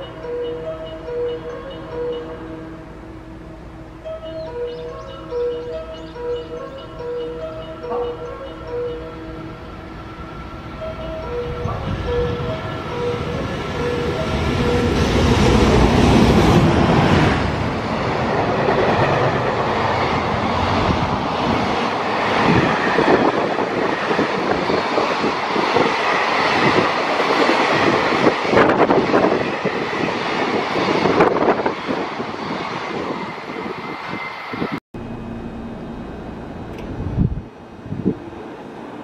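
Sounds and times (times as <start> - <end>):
locomotive rushing past: 2.3 - 39.0
repeating beeping tone: 4.1 - 9.4
freight cars rumbling: 35.0 - 39.0.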